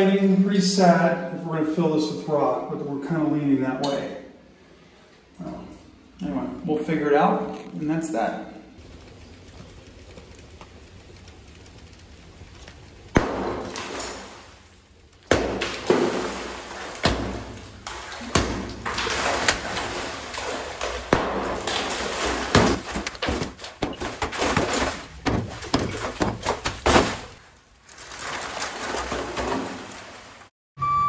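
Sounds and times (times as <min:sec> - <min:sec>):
rubble crumbling and clattering: 0:08.8 - 0:30.1.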